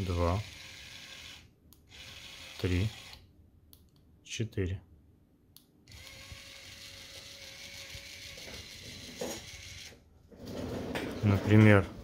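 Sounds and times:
electric actuator motor running: 0.0 - 3.2, 5.9 - 10.0.

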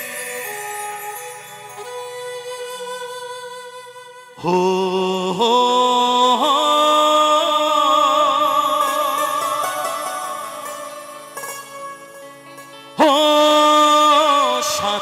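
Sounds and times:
instrumental backing: 0.0 - 4.6, 6.8 - 15.0.

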